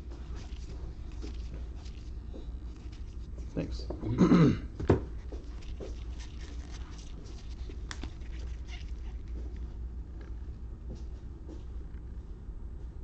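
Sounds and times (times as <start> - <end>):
trading cards flipped through: 5.4 - 9.6.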